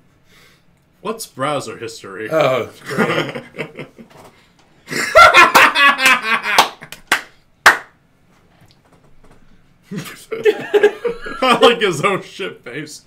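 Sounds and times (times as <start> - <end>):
men laughing loudly: 2.8 - 4.2, 4.9 - 7.0, 9.9 - 12.1
hands clapping: 6.4 - 8.0.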